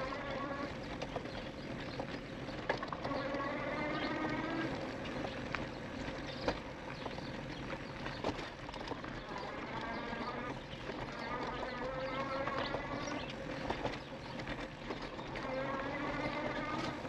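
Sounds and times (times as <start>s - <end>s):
bike knocking and rattling on bumps: 0.0s - 17.0s
bike tyres rushing on dirt: 0.0s - 17.0s
electric motor whine: 2.9s - 5.3s, 9.2s - 14.0s, 15.2s - 17.0s.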